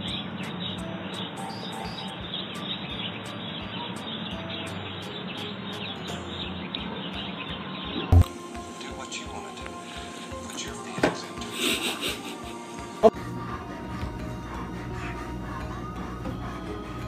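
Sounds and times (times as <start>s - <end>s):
birds chirping: 0.0s - 11.3s
steady outdoor hiss: 0.0s - 14.0s.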